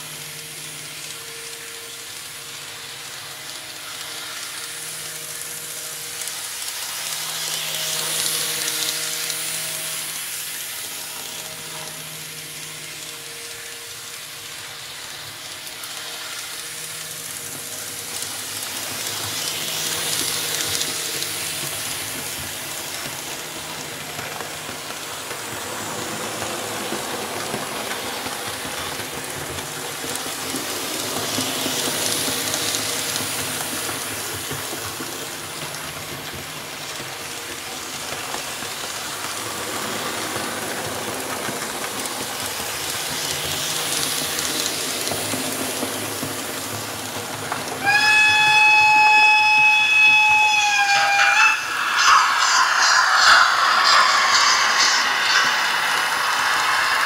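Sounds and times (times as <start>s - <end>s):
model train wheels rumbling on rail: 0.0s - 57.0s
loud high horn tone: 47.9s - 55.5s.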